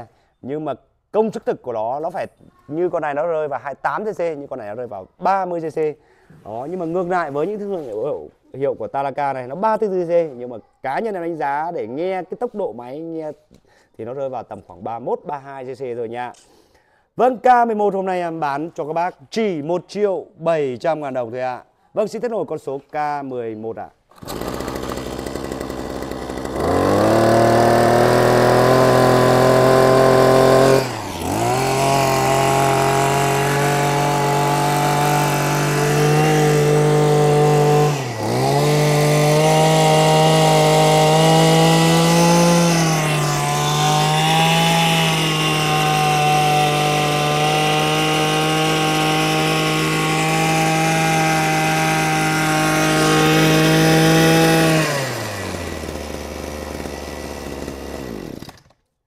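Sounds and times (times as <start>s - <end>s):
brush cutter engine revving: 24.1s - 58.9s.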